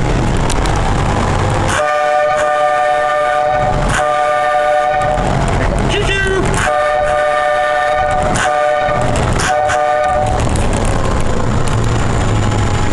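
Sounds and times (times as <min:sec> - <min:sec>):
vehicle running and road noise: 0:00.0 - 0:12.9
vehicle horn honking: 0:01.7 - 0:05.2, 0:06.6 - 0:10.4.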